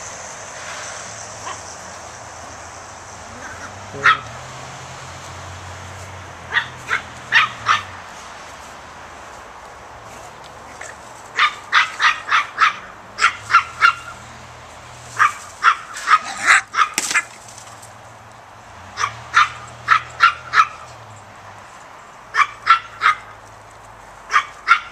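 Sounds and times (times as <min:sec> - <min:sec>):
dog barking: 0:03.5 - 0:04.3, 0:06.5 - 0:08.0, 0:11.4 - 0:14.2, 0:15.2 - 0:17.0, 0:19.0 - 0:20.9, 0:22.3 - 0:23.4, 0:24.3 - 0:24.9.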